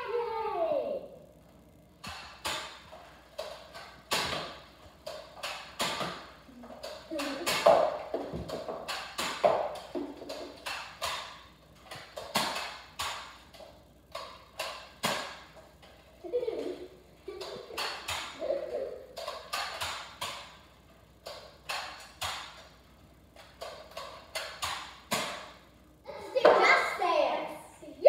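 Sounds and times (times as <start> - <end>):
toy dart blaster clacks: 2.0 - 15.6, 17.3 - 20.6, 21.2 - 22.7, 23.4 - 25.6.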